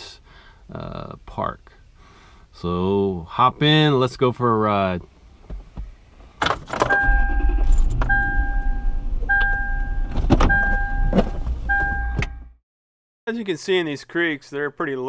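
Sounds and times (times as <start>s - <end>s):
car engine starting and idling: 6.8s - 12.4s
seatbelt warning chime: 6.9s - 12.5s.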